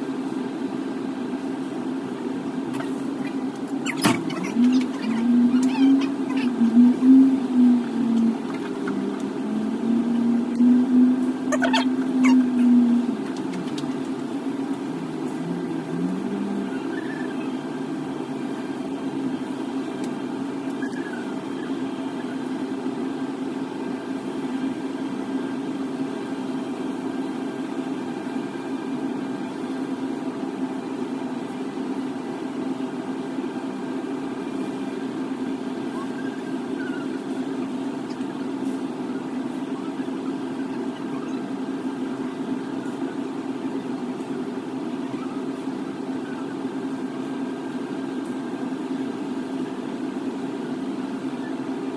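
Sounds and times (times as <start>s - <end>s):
low mechanical hum: 0.0s - 51.9s.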